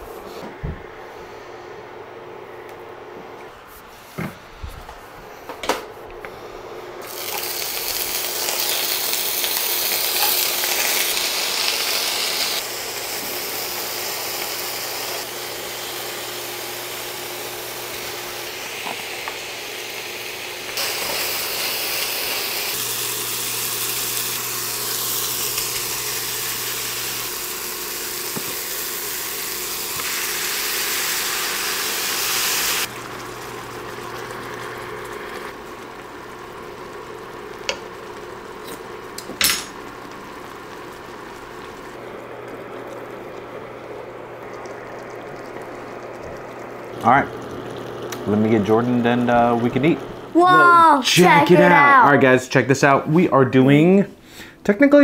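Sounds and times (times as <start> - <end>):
meat sizzling in oil: 7.0 - 50.4.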